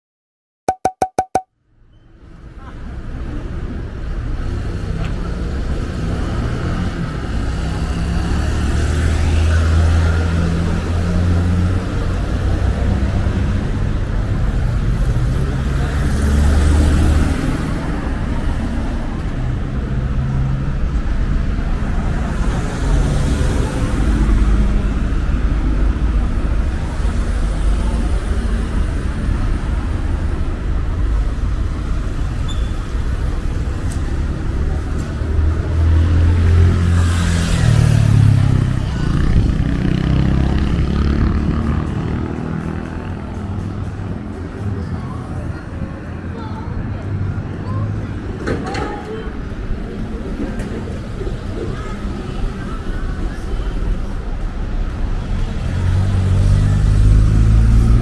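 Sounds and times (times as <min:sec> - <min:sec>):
city hum: 0:01.5 - 0:58.0
cars driving past: 0:03.4 - 0:58.0.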